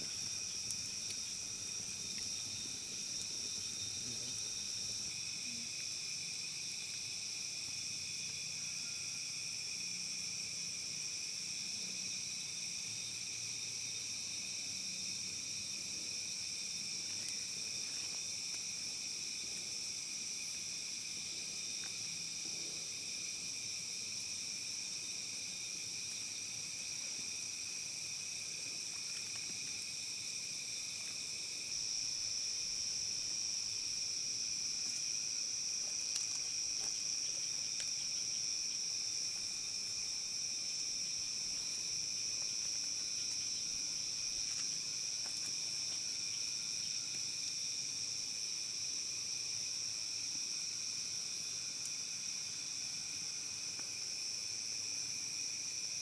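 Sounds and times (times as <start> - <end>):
forest insects chorus: 0.0 - 56.0.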